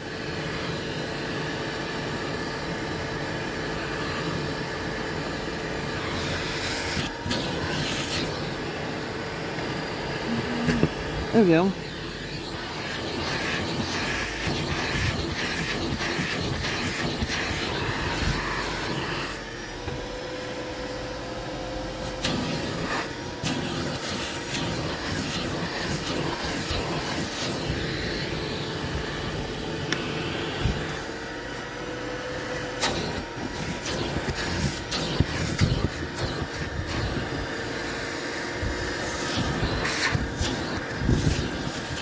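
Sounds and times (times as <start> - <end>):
shop vac motor whine: 0.0 - 42.0
nozzle sucking on carpet: 11.8 - 19.5, 22.0 - 31.2, 32.8 - 42.0.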